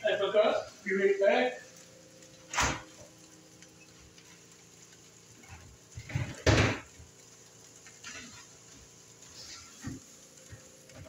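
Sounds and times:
door banging shut: 2.5s - 3.0s, 6.4s - 6.8s.

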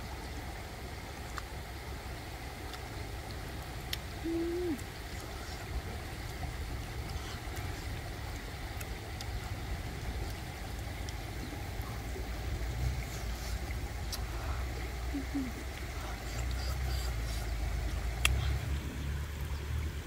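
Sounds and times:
rushing river rumble: 0.0s - 20.0s
faint clicks: 15.7s - 18.6s.

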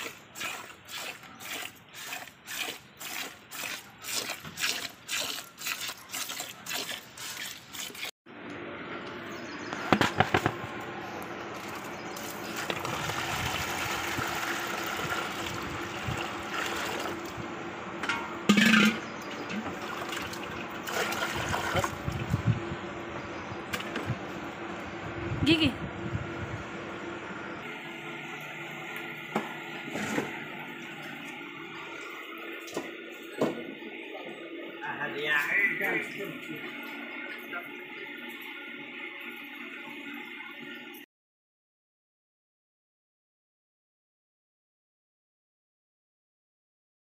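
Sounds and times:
water pouring into a tub: 0.0s - 8.1s, 12.2s - 17.3s, 19.7s - 22.0s.

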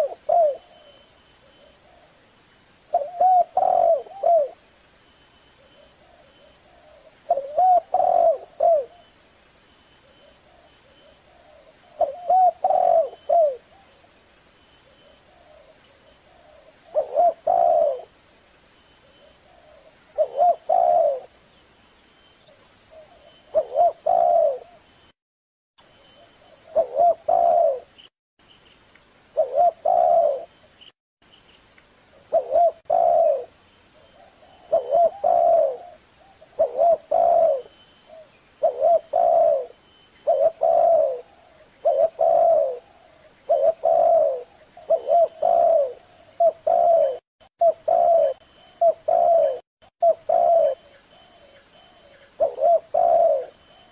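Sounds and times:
dove cooing: 0.0s - 2.1s, 2.9s - 4.6s, 5.6s - 9.1s, 10.5s - 13.9s, 15.1s - 18.2s, 19.4s - 21.4s, 22.9s - 24.8s, 26.6s - 28.0s, 29.4s - 30.5s, 32.3s - 53.9s.

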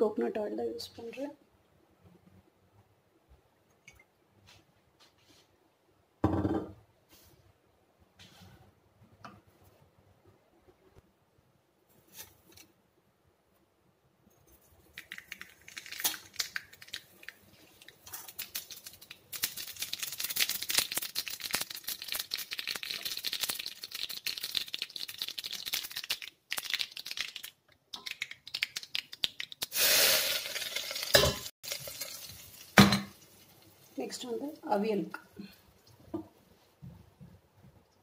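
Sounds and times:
seeds crackling in hot oil: 14.8s - 36.1s
hot oil sizzle: 15.4s - 27.4s, 29.6s - 35.0s.

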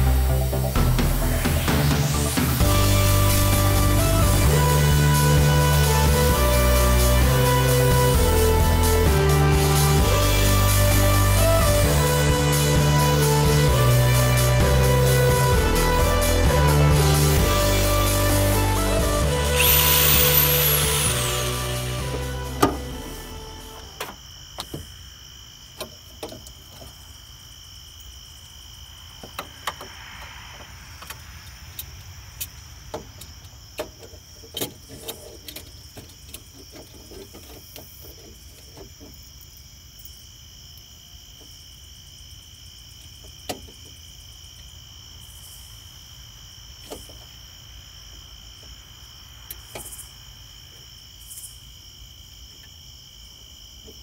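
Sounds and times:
high-pitched trill: 15.4s - 23.9s.

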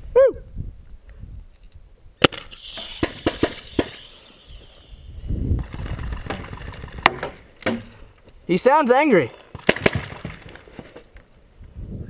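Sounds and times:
paintball gun crack: 2.2s - 4.0s, 9.5s - 10.6s.

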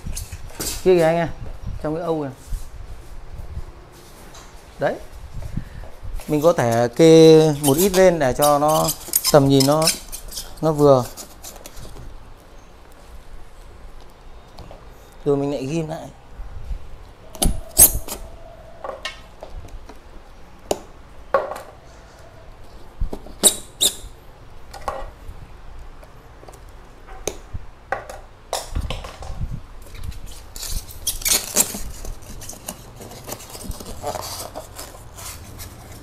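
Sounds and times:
rustling: 2.3s - 14.2s, 29.8s - 36.0s
squeaky rubbing of styrofoam: 6.3s - 12.0s, 17.4s - 18.3s, 22.8s - 24.2s, 29.9s - 36.0s.

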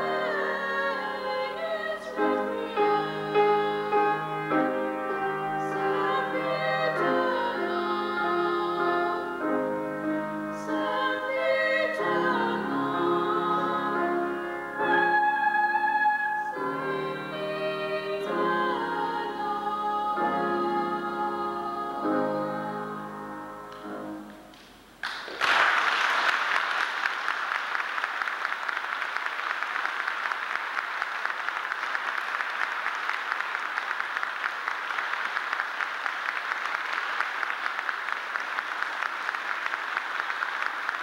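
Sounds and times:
boys' choir singing: 0.0s - 23.4s
audience applause: 25.0s - 41.0s.

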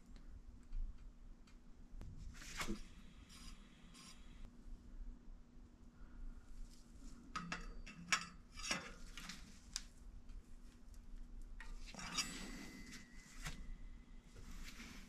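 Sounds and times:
short metal scrape: 11.6s - 13.4s.

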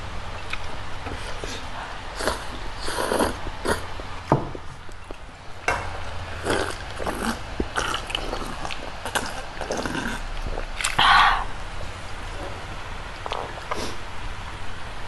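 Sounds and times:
noodles being slurped: 6.4s - 11.0s
mouth smacks: 6.6s - 11.5s.

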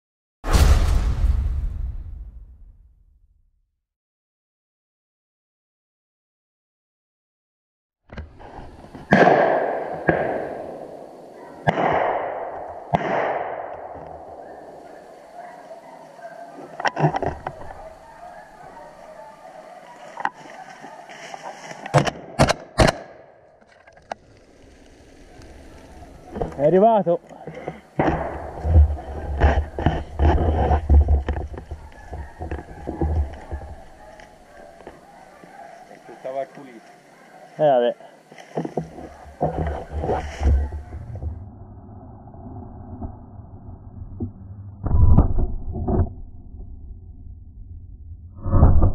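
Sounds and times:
gunshots echoing: 9.1s - 15.1s
microphone handling noise: 27.5s - 35.1s, 38.4s - 41.4s.

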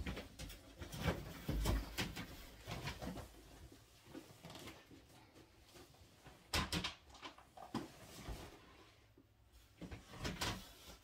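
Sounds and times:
faint room noise: 0.0s - 11.0s.

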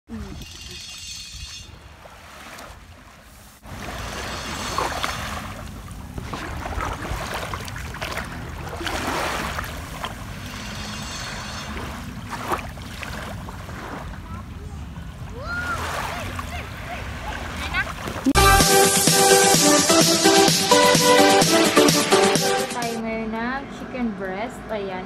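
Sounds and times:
small waves washing on beach: 1.4s - 18.4s.

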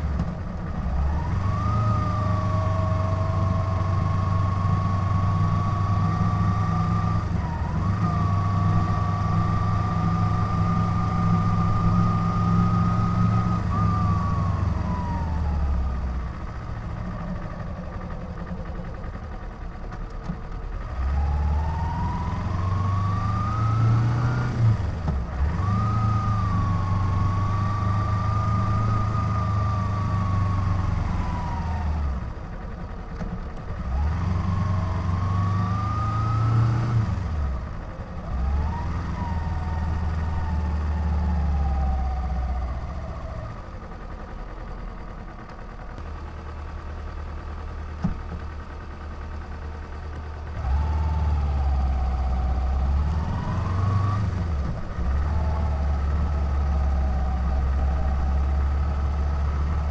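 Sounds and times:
motorcycle engine revving: 20.9s - 32.2s, 50.5s - 59.9s.

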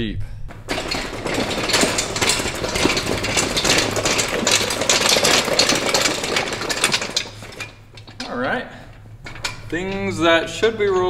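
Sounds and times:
track rattling on concrete: 0.5s - 11.0s.

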